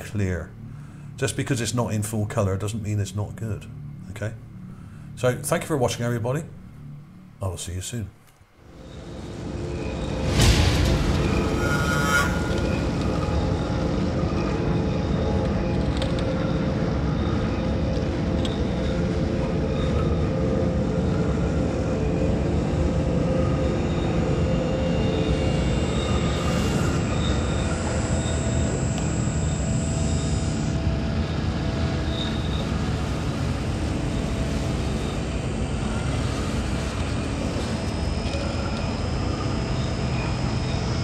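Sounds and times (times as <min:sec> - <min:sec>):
faint high held tones: 0:08.6 - 0:41.0
dense rumbling noise: 0:08.8 - 0:41.0.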